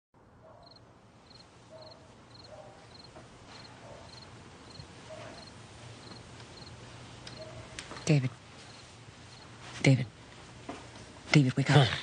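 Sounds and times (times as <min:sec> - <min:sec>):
lower insect calls: 0:00.6 - 0:07.4
crickets chirping: 0:00.6 - 0:09.5.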